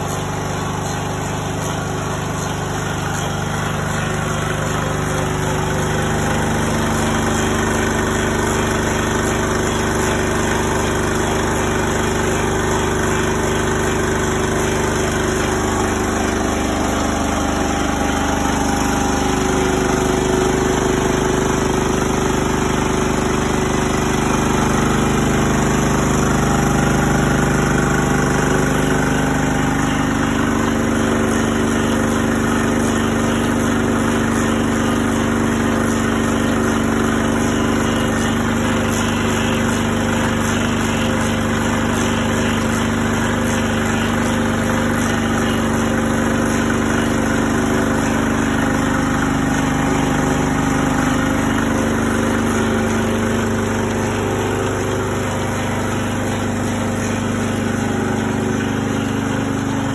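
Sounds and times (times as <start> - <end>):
engine running steadily: 0.0 - 59.9
lathe cutting wood: 0.0 - 59.9.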